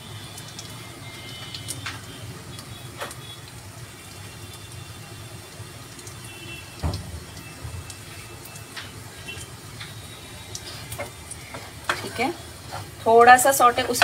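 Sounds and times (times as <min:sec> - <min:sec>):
garlic sizzling in butter: 0:02.8 - 0:14.0.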